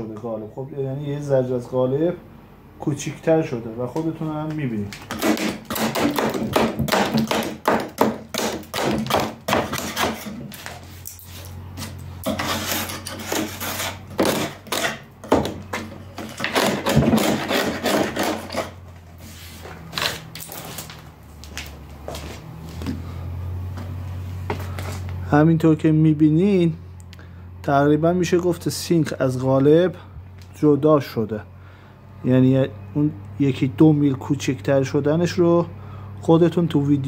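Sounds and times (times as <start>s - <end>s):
hand scraper scraping stone edge: 8.4s - 15.1s, 15.7s - 18.9s.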